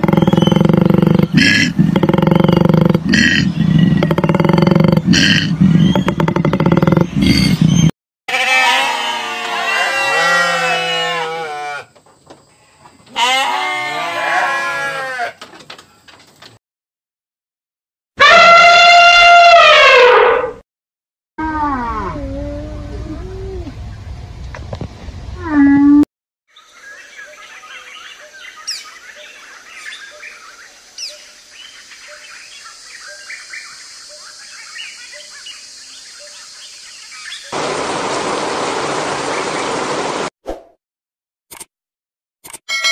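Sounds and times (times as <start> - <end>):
birds chirping: 0.0 - 7.9, 26.5 - 40.2
sheep bleating: 8.3 - 11.9, 12.6 - 15.4
heavy rain hissing: 37.6 - 40.3.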